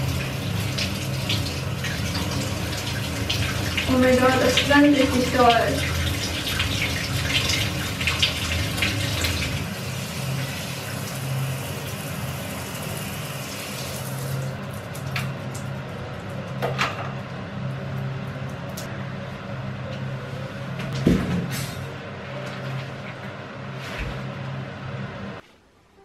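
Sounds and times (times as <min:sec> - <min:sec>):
low hum: 0:14.0 - 0:25.4.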